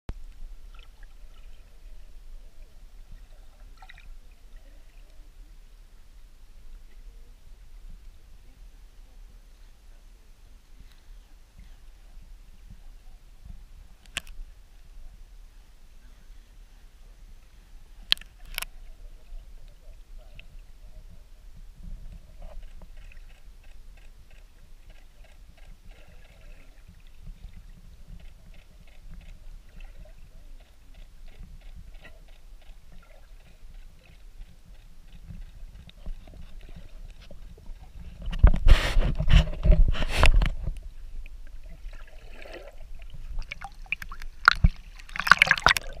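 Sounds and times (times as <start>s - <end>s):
water splashing and sloshing: 0.2s - 5.2s, 25.9s - 46.0s
muffled underwater rumble: 25.1s - 46.0s.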